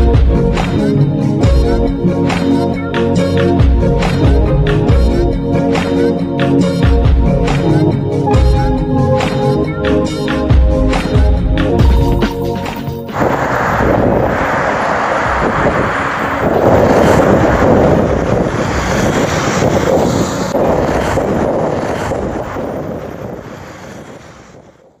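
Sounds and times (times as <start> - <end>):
background music: 0.0 - 13.3
wind on microphone: 13.0 - 25.0.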